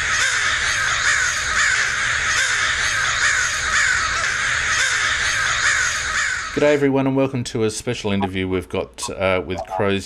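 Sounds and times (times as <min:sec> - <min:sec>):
crows cawing: 0:00.0 - 0:06.6.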